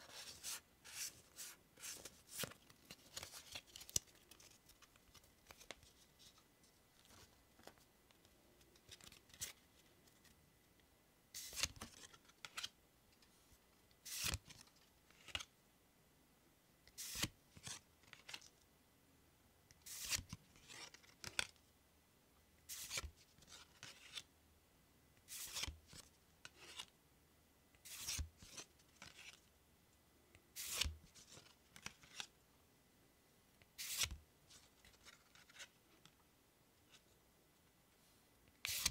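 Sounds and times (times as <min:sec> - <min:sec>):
cards swishing: 0:11.4 - 0:12.7, 0:14.0 - 0:14.6, 0:17.0 - 0:17.8, 0:19.8 - 0:21.4, 0:22.7 - 0:23.1, 0:25.3 - 0:25.7, 0:27.9 - 0:29.4, 0:30.6 - 0:32.3, 0:33.8 - 0:34.2, 0:38.6 - 0:38.9.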